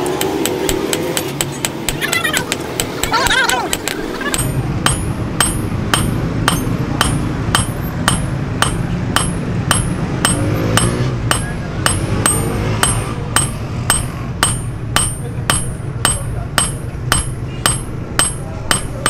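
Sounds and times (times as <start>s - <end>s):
hammer striking hot metal on anvil: 2.8s - 19.0s.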